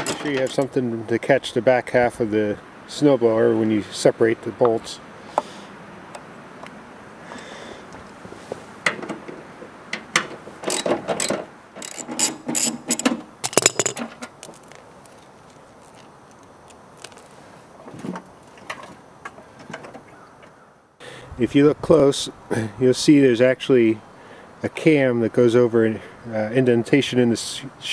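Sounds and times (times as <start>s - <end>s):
ratchet wrench clicking: 10.7s - 14.6s
metallic clinks: 10.7s - 17.4s.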